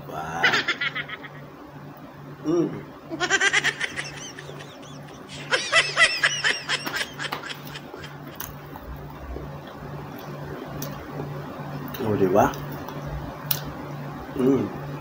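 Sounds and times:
high-pitched snickering laughter: 0.4s - 1.5s, 3.1s - 8.3s.

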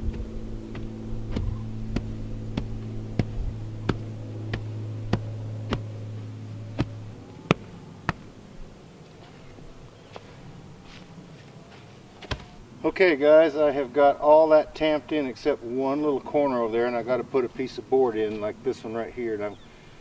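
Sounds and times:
wooden tamper thumping clay: 0.0s - 6.0s
steady low hum: 0.0s - 20.0s.

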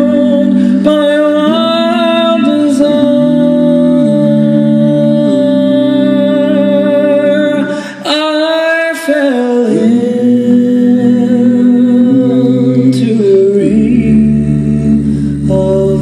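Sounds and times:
a cappella group singing harmony: 0.0s - 16.0s
deep bass voice: 9.8s - 16.0s.

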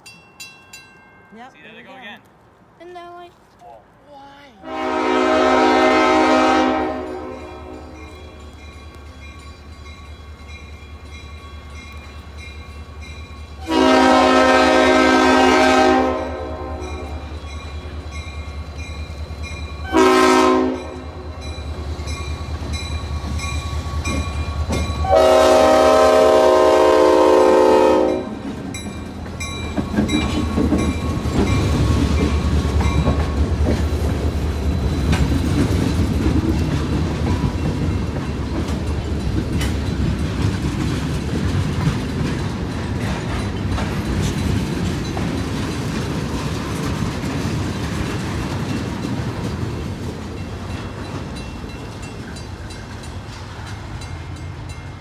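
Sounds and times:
railroad crossing bell ringing: 0.0s - 2.2s, 6.3s - 33.6s, 37.3s - 40.4s, 50.2s - 55.0s
locomotive air horn blasts: 4.6s - 8.0s, 13.6s - 17.2s, 19.8s - 21.2s, 25.0s - 28.4s
train wheels clacking over rails: 20.7s - 25.8s, 28.3s - 55.0s.

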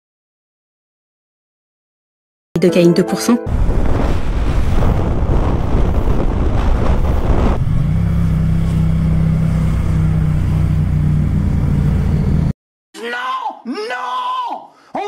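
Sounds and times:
wind rush on microphone: 3.5s - 8.5s
motorcycle engine hum: 3.5s - 12.5s.

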